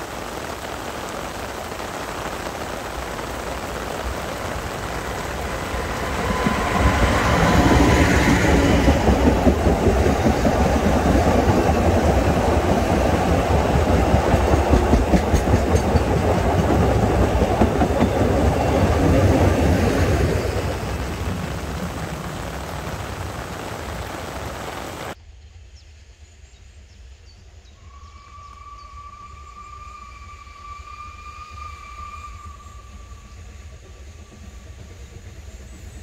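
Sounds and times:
goods train clattering on rails: 4.3s - 24.1s.

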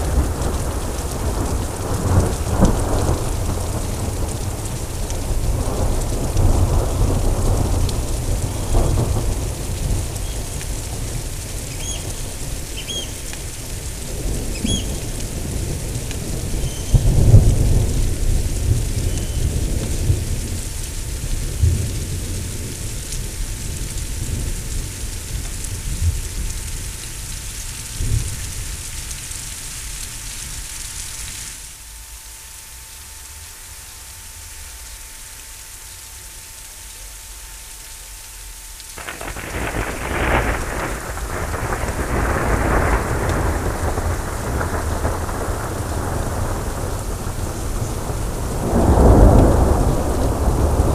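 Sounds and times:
thunder rumbling: 0.0s - 29.4s, 39.0s - 50.9s
rain hissing: 0.0s - 50.9s.

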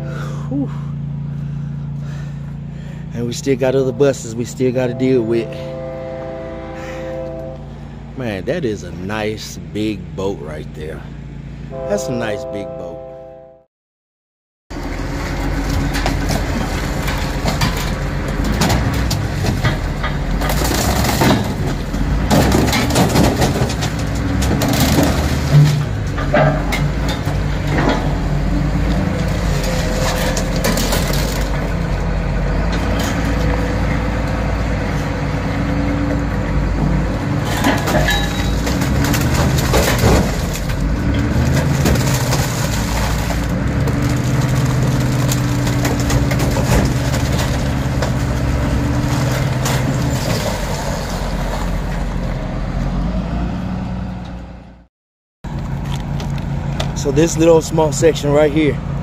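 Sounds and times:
heavy machine engine running: 0.0s - 12.6s, 14.7s - 54.8s
wires cracking and snapping: 38.8s - 48.5s.

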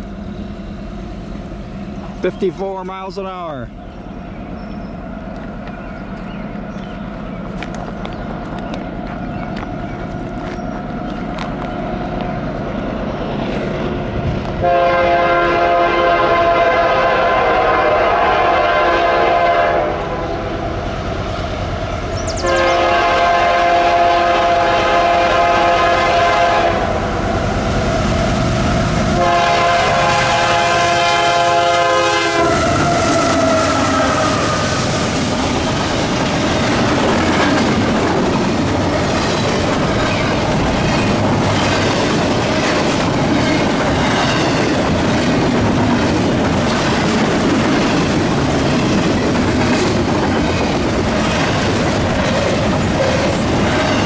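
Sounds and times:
diesel locomotive horn blasts: 14.6s - 20.6s, 22.4s - 27.1s, 29.1s - 35.0s
train wheels clacking over rail joints: 35.1s - 54.0s.

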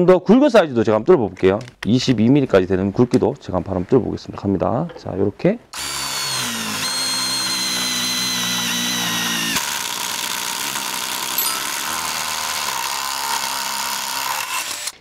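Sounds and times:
impact driver drilling steel: 5.8s - 15.0s.

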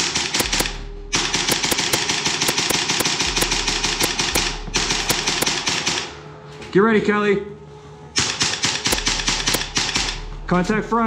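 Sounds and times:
airsoft guns firing: 0.1s - 6.1s, 8.2s - 10.2s.

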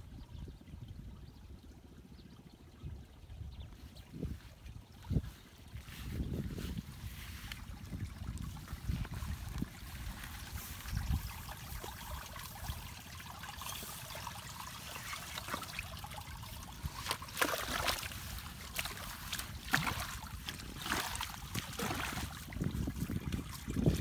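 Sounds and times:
water trickling: 0.6s - 24.0s
hoe splashing and scraping mud: 7.5s - 24.0s.

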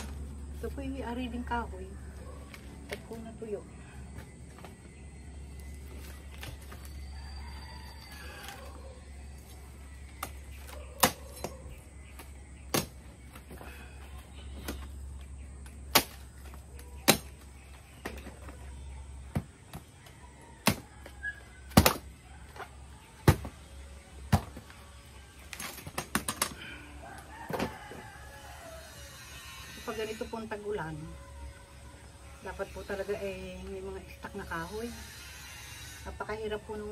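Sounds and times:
knife chopping palm fronds: 10.0s - 13.8s, 15.8s - 18.2s, 20.6s - 22.1s, 23.2s - 23.6s.

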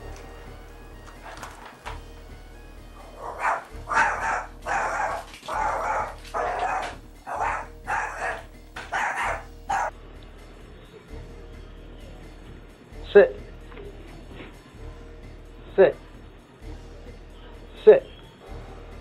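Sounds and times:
dog barking: 2.9s - 9.9s.

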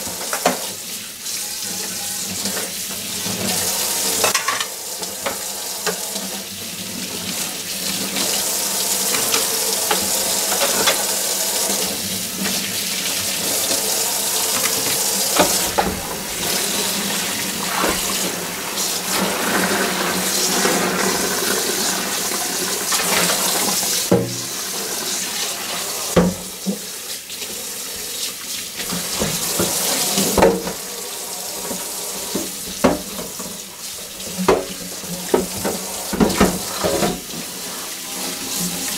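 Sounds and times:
dishes being scrubbed: 0.0s - 38.9s
dishes knocking: 24.1s - 24.5s
tap running into steel sink: 24.1s - 24.5s.

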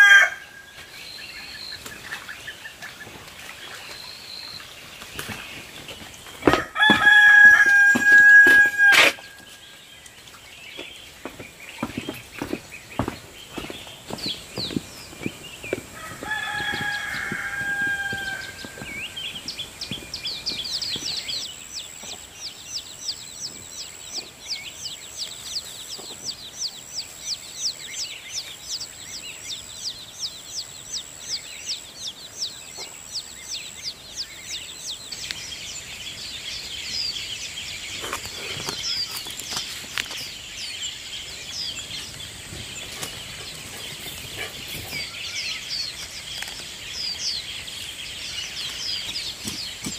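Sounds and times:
hen or rooster call: 0.0s - 0.7s, 6.4s - 9.4s, 15.9s - 19.1s
chicks peeping: 0.0s - 49.9s.

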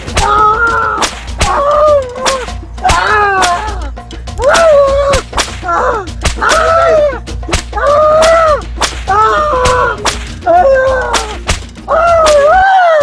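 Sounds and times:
person wailing in pain: 0.1s - 13.0s
whip cracking: 1.0s - 1.6s, 4.5s - 6.5s, 7.5s - 10.5s, 11.1s - 12.5s.

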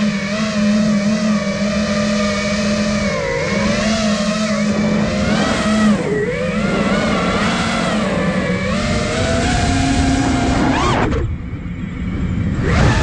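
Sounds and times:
drone motors buzzing: 0.0s - 13.0s.

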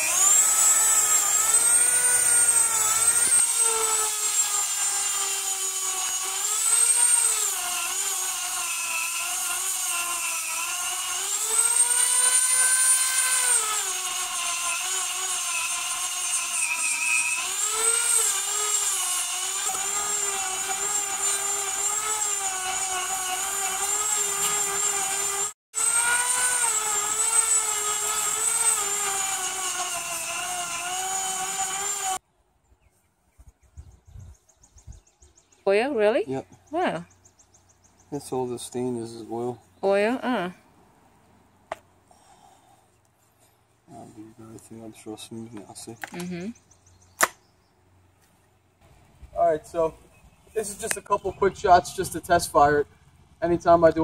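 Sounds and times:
electric power tool whining: 0.0s - 32.2s.

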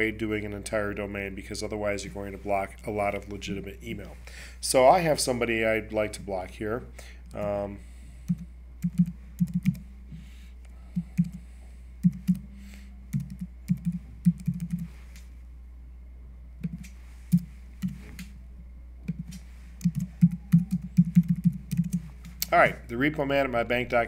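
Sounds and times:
steady low hum: 0.0s - 24.0s
keyboard typing: 8.3s - 9.8s, 11.0s - 11.4s, 12.0s - 12.4s, 13.1s - 14.9s, 19.1s - 22.1s.

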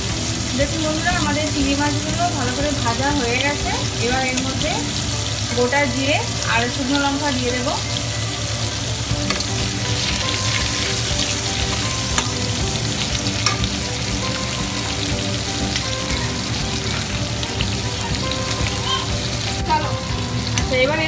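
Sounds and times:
food sizzling in hot oil: 0.0s - 21.0s.

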